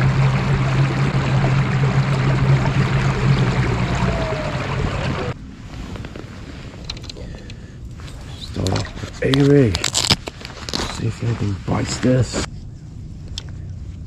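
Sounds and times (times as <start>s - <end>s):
water rushing along hull: 0.0s - 5.4s
low drive hum: 0.0s - 14.0s.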